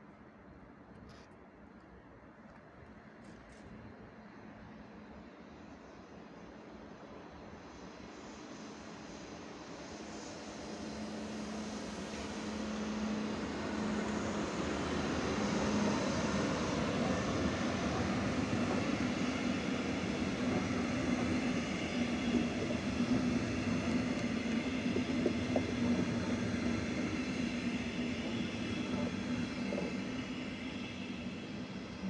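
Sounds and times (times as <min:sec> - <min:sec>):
electric locomotive hum: 0:03.8 - 0:32.0
wheels rumbling on rail: 0:10.1 - 0:32.0.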